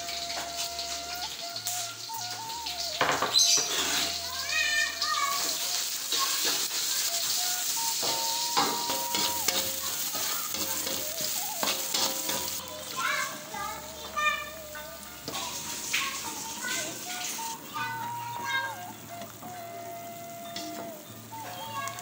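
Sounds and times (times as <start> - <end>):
garlic sizzling in hot oil: 0.0 - 22.0
metal spatula scraping a pan: 3.4 - 4.4, 5.3 - 12.7.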